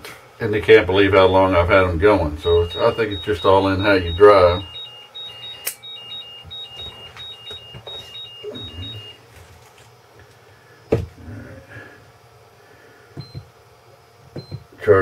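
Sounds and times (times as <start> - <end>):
battery charger beeping: 2.4 - 9.2.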